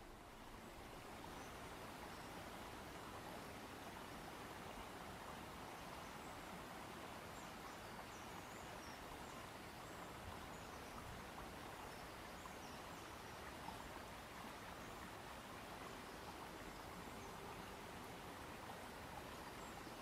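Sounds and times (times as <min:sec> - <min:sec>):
steady outdoor hiss: 0:00.0 - 0:20.0.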